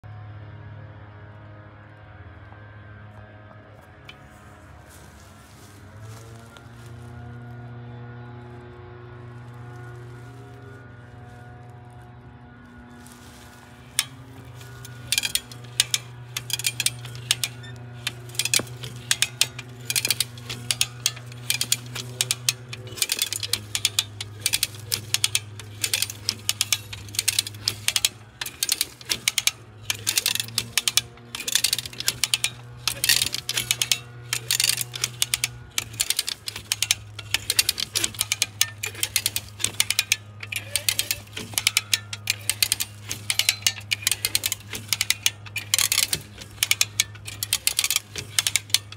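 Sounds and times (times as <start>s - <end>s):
ratchet clicking: 13.9s - 48.9s.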